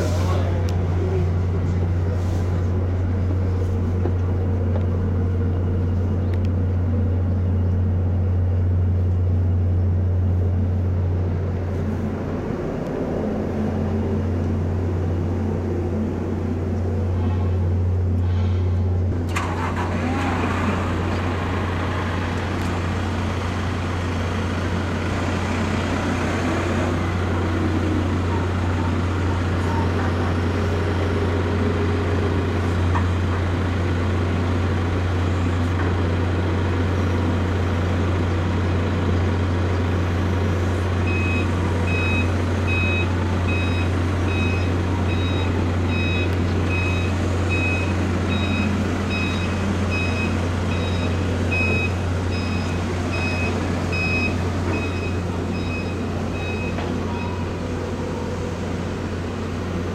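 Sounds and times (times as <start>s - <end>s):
forklift reversing alarm beeping: 41.0s - 58.7s.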